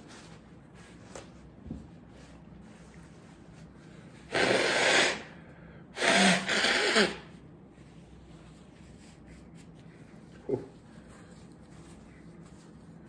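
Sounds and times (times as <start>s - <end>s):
man blowing nose: 4.2s - 7.4s.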